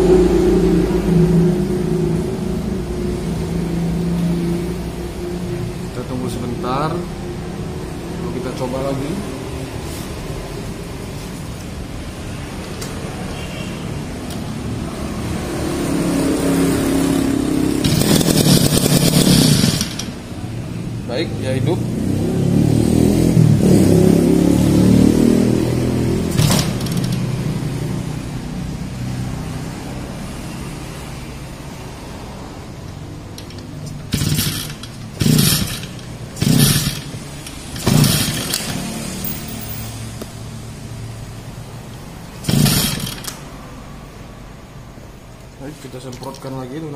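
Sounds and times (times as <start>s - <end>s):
brush cutter engine revving: 17.0s - 20.3s, 26.2s - 27.4s, 33.4s - 39.3s, 42.4s - 43.5s.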